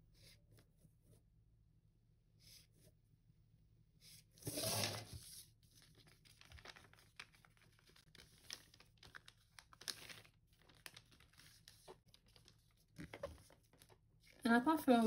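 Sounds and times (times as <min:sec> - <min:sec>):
paper rustling and crinkling: 0:04.4 - 0:15.0.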